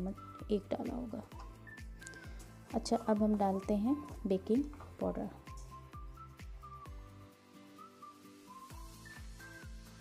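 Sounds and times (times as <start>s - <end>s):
quiet background music: 0.0s - 10.0s.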